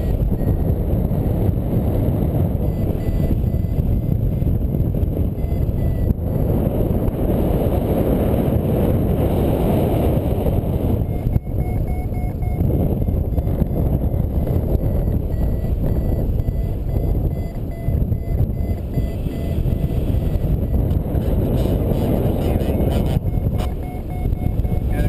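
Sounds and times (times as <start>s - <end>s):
variometer short beeps: 0.0s - 1.6s, 2.3s - 6.5s, 10.9s - 25.0s
wind buffeting microphone: 0.0s - 25.0s.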